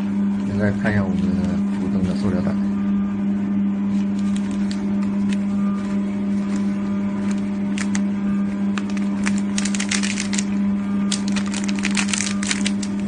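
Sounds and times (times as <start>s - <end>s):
band sealer humming: 0.0s - 13.0s
plastic bag crinkling: 3.9s - 13.0s.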